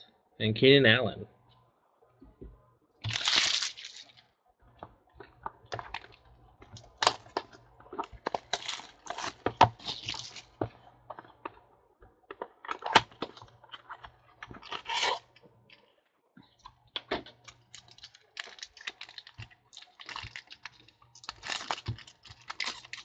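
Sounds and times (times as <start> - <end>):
packaging rustling: 3.0 - 4.2, 17.4 - 23.0.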